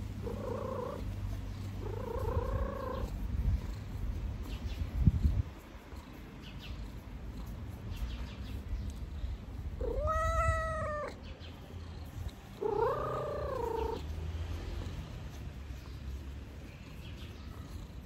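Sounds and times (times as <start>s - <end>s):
cat purring: 0.0s - 18.0s
cat meowing: 9.8s - 11.2s, 12.6s - 14.0s.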